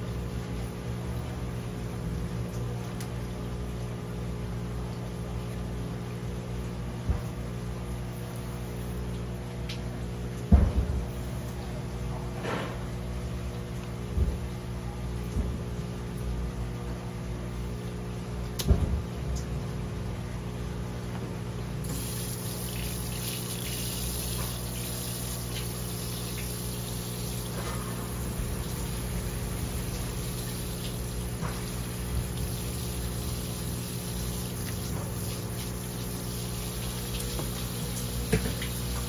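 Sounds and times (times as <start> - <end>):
tap water splashing on fish: 7.0 - 7.7, 8.5 - 11.2, 12.5 - 14.6, 18.4 - 19.5, 21.8 - 39.0.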